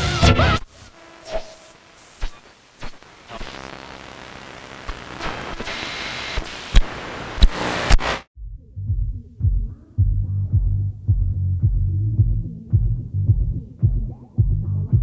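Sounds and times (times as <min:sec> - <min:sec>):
electronic noise riser hiss: 0:00.0 - 0:08.3.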